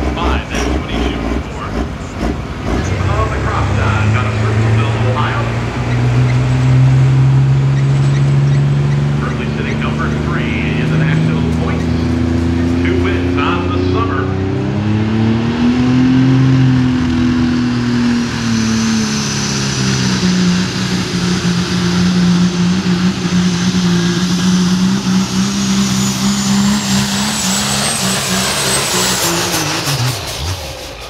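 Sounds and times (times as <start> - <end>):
diesel engine at full throttle: 0.0 - 31.0
high turbocharger whistle: 17.7 - 31.0.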